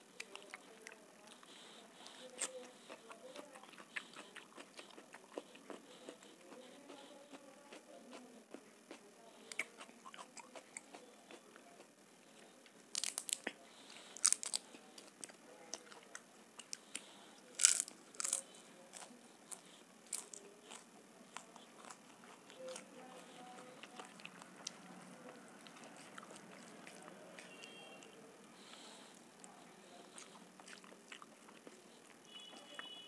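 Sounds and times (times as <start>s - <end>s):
soft chewing clicks: 0.1s - 33.0s
loud crunches of biting: 12.9s - 15.4s, 16.1s - 22.5s.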